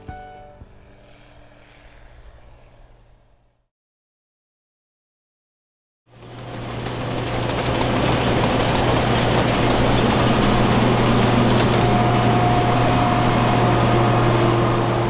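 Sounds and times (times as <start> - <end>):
combine harvester engine hum: 0.0 - 3.5, 6.1 - 15.0
threshing machinery clatter: 6.2 - 13.6.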